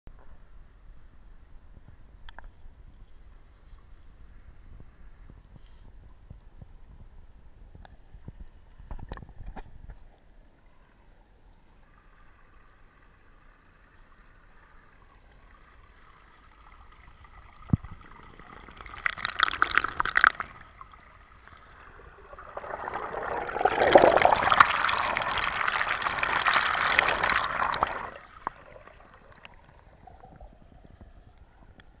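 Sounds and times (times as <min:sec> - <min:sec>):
stream trickling over rocks: 0:11.8 - 0:31.2.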